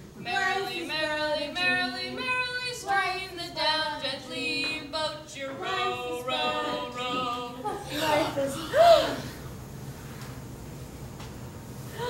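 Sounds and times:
person singing unaccompanied: 0.2 - 8.3.

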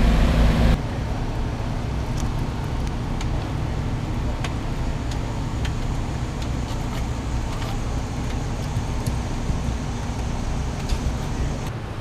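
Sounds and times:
engine low rumble: 0.0 - 12.0.

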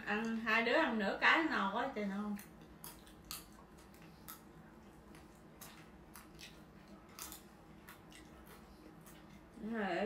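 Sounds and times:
crisp chewing crunches: 2.4 - 9.5.

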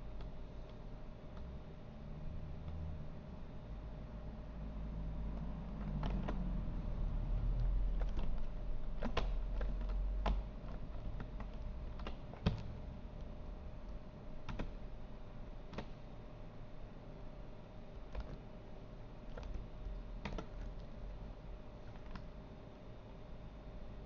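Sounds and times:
steady low hum: 0.0 - 24.0
keyboard key clicks: 7.6 - 12.9, 14.5 - 14.8, 15.7 - 16.0, 18.1 - 18.4, 20.2 - 21.0.

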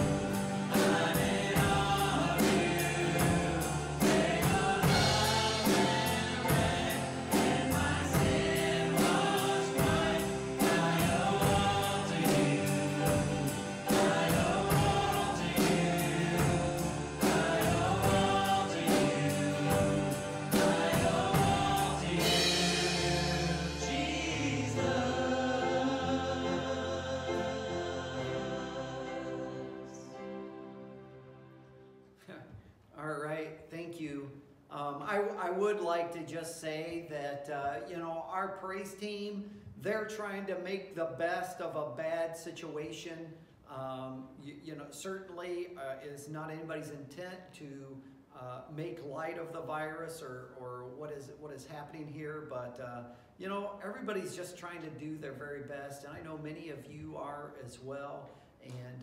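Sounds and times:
drums: 0.0 - 28.7
people singing: 0.0 - 31.0
acoustic guitar: 0.0 - 31.4.

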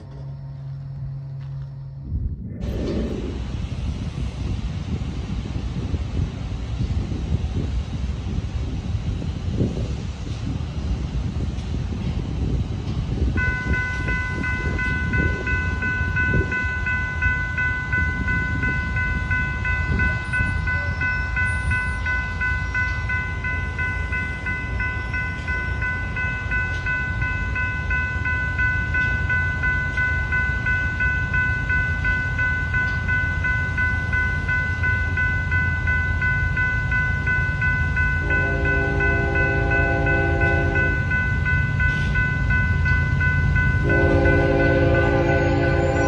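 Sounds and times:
railroad crossing bell ringing: 0.0 - 2.2, 12.0 - 46.0
wind rumble on microphone: 0.0 - 46.0.

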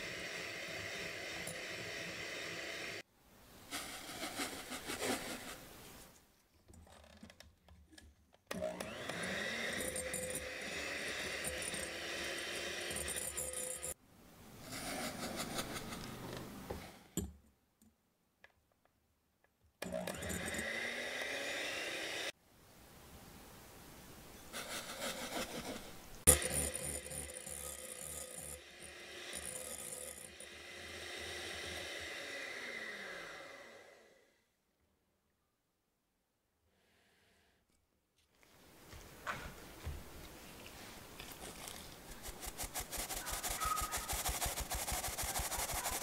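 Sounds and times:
electric hand mixer whirring: 0.0 - 3.0, 8.5 - 14.0, 19.9 - 22.4, 26.3 - 34.3
beaters scraping glass bowl: 9.7 - 14.0.

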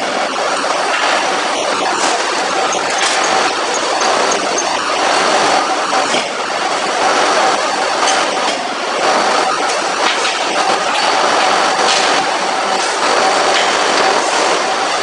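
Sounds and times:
forging hammer machine noise: 0.0 - 15.0.

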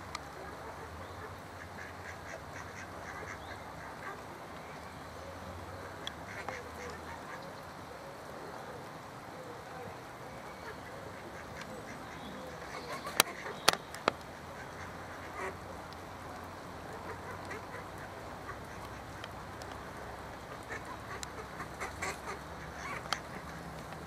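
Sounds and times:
ducks quacking: 0.3 - 4.3, 5.9 - 7.6, 10.6 - 15.8, 16.8 - 23.8
ducks scuffling: 10.6 - 16.1, 16.8 - 24.0.

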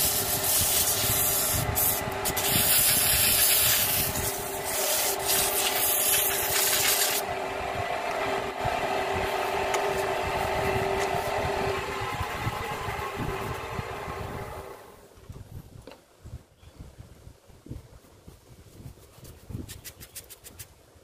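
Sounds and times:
sandpaper rubbing on wood: 0.0 - 7.2, 18.7 - 20.7
lathe humming: 0.0 - 15.1.

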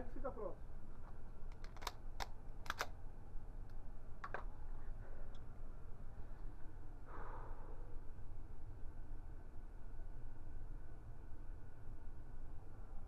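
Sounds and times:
steady low hum: 0.0 - 13.0
sharp clicks: 1.5 - 3.0.

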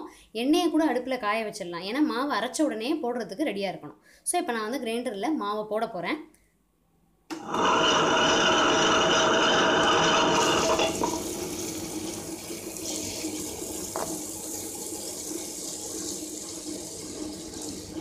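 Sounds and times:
wet grinder humming: 7.3 - 18.0
wet churning of grinding: 7.5 - 13.6.

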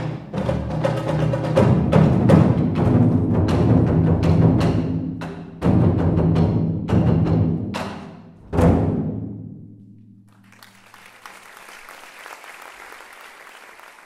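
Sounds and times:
barrel drums booming: 0.0 - 10.2
applause: 10.3 - 14.0.

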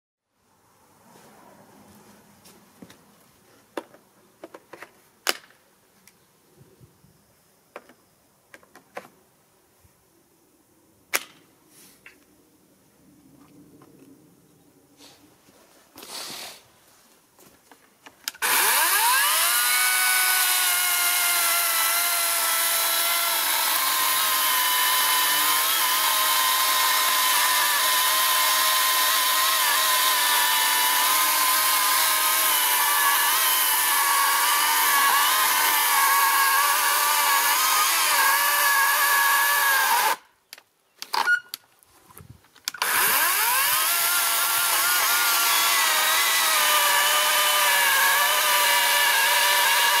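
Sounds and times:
electric chainsaw cutting a log: 18.3 - 40.2, 42.7 - 50.0.

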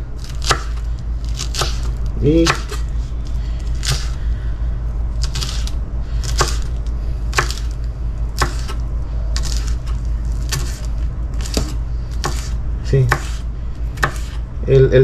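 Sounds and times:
steady low hum: 0.0 - 15.0
knife chopping on cutting board: 0.2 - 2.8, 3.8 - 4.2, 5.2 - 6.7, 7.3 - 7.8, 8.4 - 8.8, 9.4 - 14.4.

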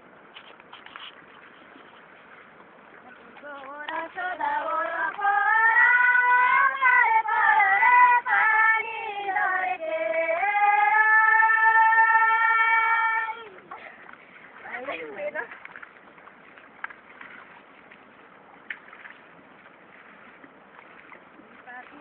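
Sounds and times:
high voice singing folk song: 3.1 - 13.7.

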